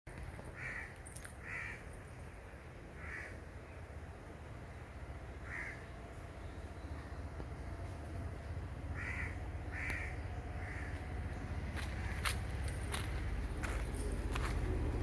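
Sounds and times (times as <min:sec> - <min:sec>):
steady low rumble: 0:00.1 - 0:15.0
bird calling: 0:05.4 - 0:07.2, 0:08.9 - 0:12.4.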